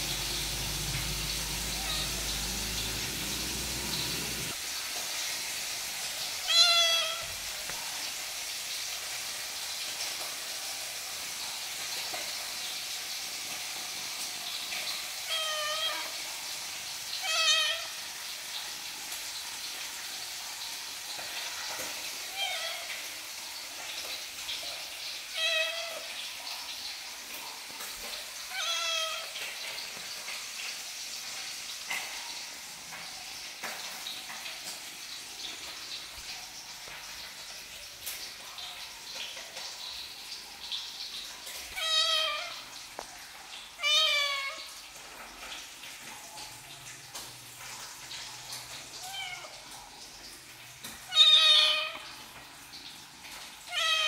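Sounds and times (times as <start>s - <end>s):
kitten meowing: 0.2s - 3.2s, 6.4s - 7.3s, 28.5s - 29.3s, 41.8s - 42.6s, 51.1s - 52.1s, 53.7s - 54.0s.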